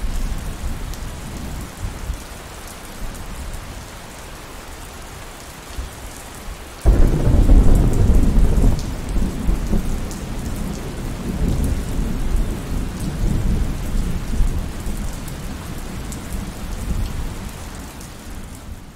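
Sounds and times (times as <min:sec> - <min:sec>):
thunder rumbling: 0:06.9 - 0:14.8.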